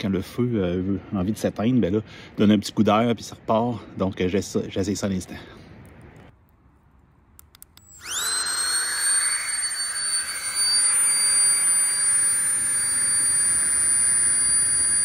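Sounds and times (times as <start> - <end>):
pump motor high-pitched whine: 7.8 - 15.0.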